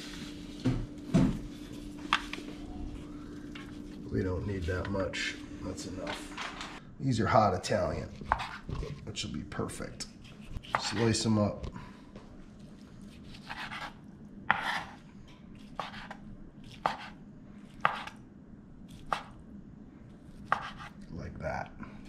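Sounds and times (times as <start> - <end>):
knife slicing sausage: 10.2 - 11.2, 13.0 - 15.0, 15.6 - 18.2, 20.3 - 21.0.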